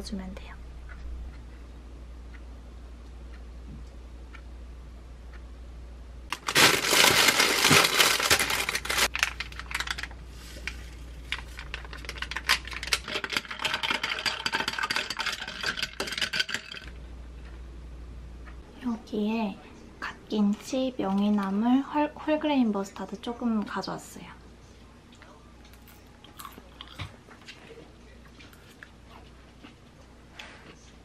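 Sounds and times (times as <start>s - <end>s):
parchment paper crinkling: 6.3s - 15.6s.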